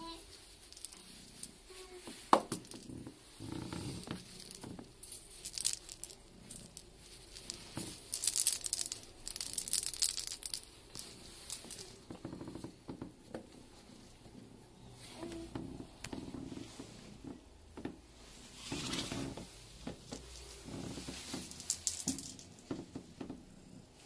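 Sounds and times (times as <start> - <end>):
cat toy rustling and crinkling: 0.0 - 12.7, 18.2 - 23.8.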